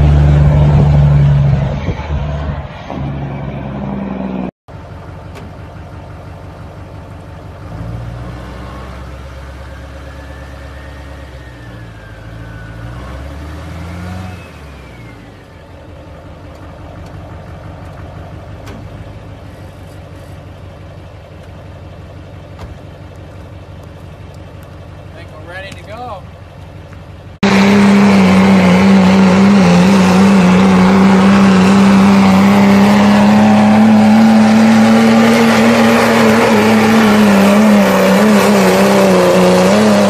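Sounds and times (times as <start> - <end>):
truck engine running: 0.0 - 12.9, 14.7 - 40.0
engine whine: 0.0 - 40.0.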